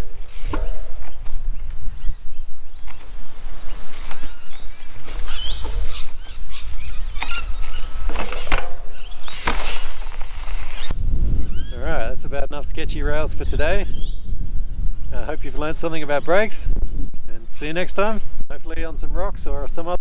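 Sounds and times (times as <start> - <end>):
bird chirps: 0.0 - 11.8, 13.8 - 17.3
bike tyres thudding on wood: 0.2 - 1.8, 2.8 - 10.9.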